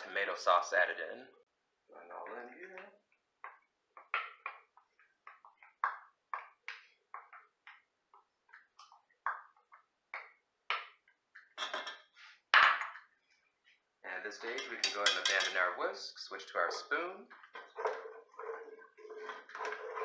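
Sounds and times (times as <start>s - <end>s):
wooden spoon tapping pot: 2.8s - 11.8s
utensil clanking on pot: 14.5s - 15.7s.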